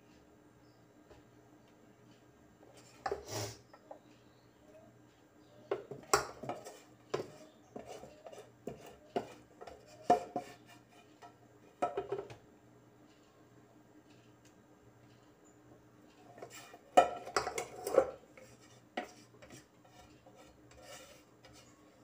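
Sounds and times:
spoon scraping and knocking pans: 5.7s - 12.4s, 16.2s - 22.0s.

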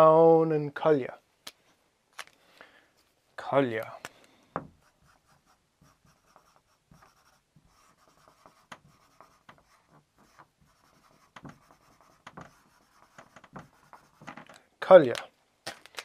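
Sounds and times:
marker scratching on whiteboard: 4.7s - 14.5s.

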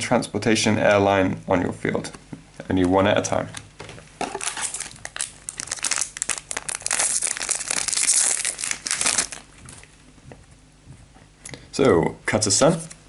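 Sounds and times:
foil wrapper crinkling: 4.2s - 9.9s.

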